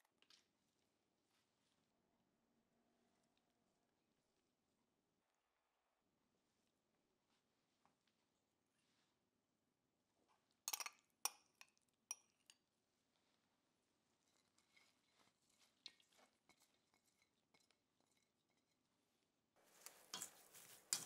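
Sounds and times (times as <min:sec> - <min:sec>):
metal spoon clinking on colander: 0:10.7 - 0:12.6, 0:20.1 - 0:21.0
soft taps and rustles: 0:19.6 - 0:21.0.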